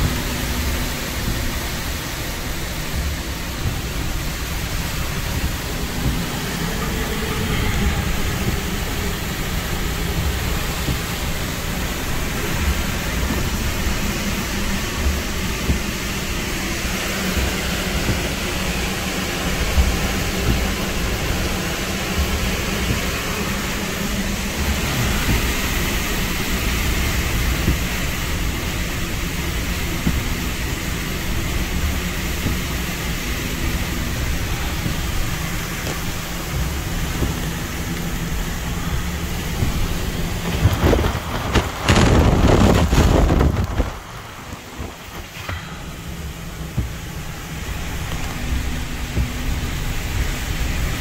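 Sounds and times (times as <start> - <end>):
heavy rain: 0.0 - 51.0
hurricane wind: 0.0 - 51.0
loud rush with heavy rumble: 0.0 - 51.0.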